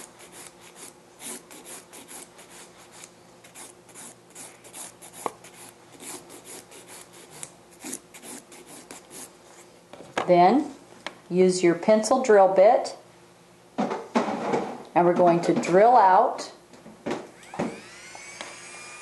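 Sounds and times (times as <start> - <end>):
nail file rasping: 0.0 - 9.3.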